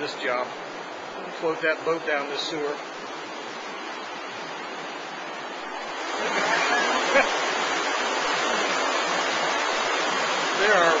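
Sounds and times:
water rushing in sewer channel: 0.0 - 11.0.

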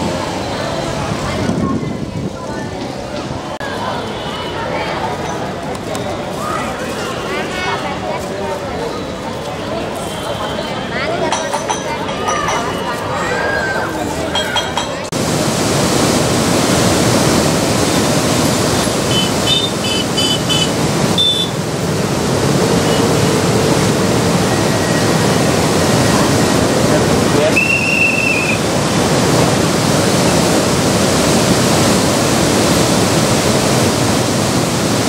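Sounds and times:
river water rushing: 0.0 - 1.6, 15.1 - 35.0.

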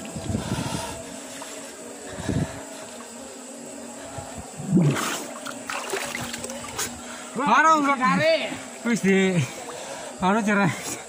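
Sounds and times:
water splash: 4.8 - 6.9
river water trickling and lapping: 4.8 - 11.0.

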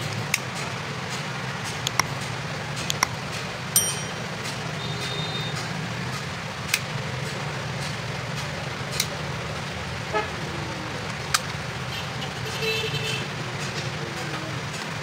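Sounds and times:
brief metallic ring: 3.8 - 4.4.

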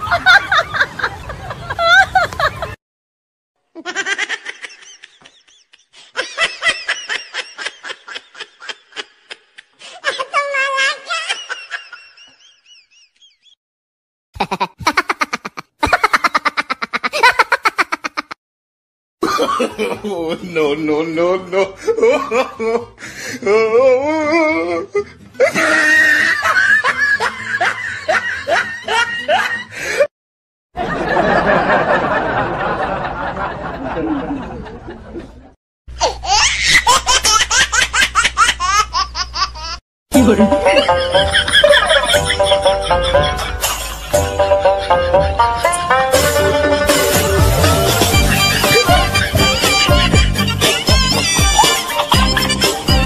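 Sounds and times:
high-pitched laughter: 3.8 - 13.4, 14.4 - 18.4, 24.0 - 29.7, 36.0 - 53.0.

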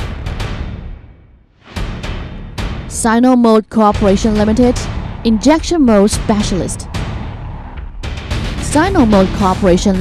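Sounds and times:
dramatic soundtrack music: 0.0 - 10.0
deep boom: 4.1 - 9.7.

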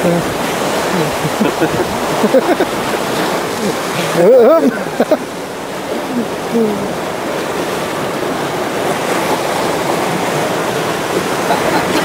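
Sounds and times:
faint voices: 0.0 - 5.2, 5.9 - 7.0
churning white water rushing: 0.0 - 12.0.

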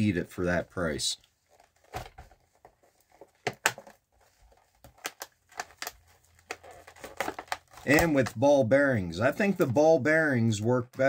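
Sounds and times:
plastic packaging crinkling: 1.5 - 8.4.

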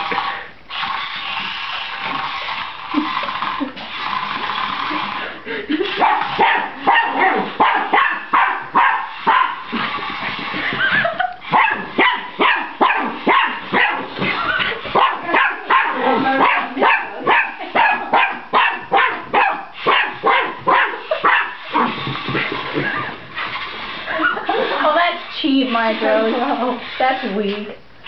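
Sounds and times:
small dog barking: 6.0 - 9.6, 11.6 - 14.1, 15.0 - 21.9.

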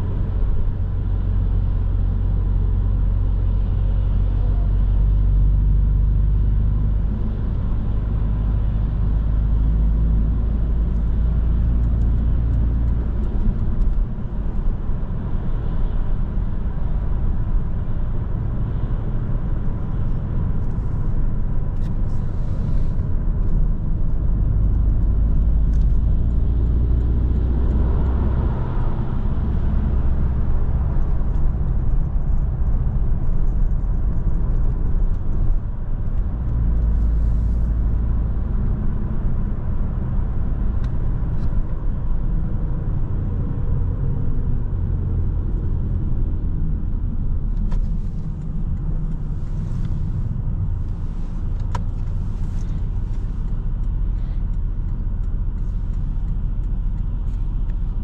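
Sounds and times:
car engine low rumble: 0.0 - 58.0
tyre and road noise: 0.0 - 58.0.

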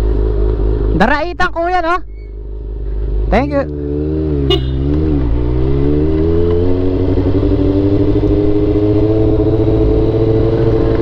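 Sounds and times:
motorcycle engine accelerating: 3.4 - 11.0.

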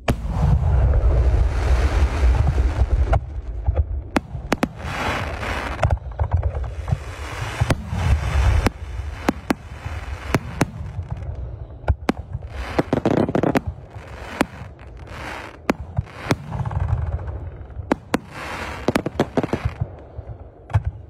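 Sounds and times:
deep rolling boom: 0.0 - 11.3
fireworks bursting with sharp bangs: 0.0 - 21.0
fireworks crackling hiss: 0.1 - 3.5, 4.2 - 5.9, 6.6 - 16.9, 17.6 - 20.1.

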